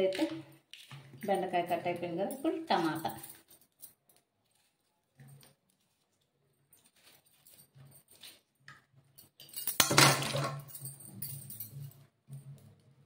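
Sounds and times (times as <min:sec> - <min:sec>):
knife clattering into metal pot: 0:09.6 - 0:10.7.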